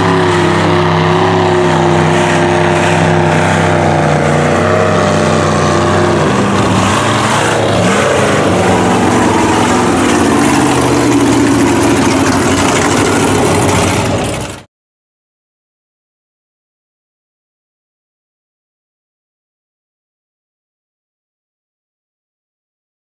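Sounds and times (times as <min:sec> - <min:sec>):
truck engine running hard: 0:00.0 - 0:14.7.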